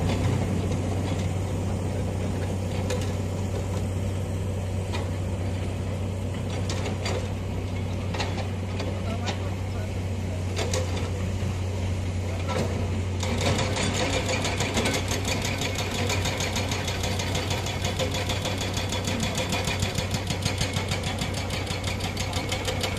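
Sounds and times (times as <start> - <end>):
diesel engine droning: 0.0 - 13.3.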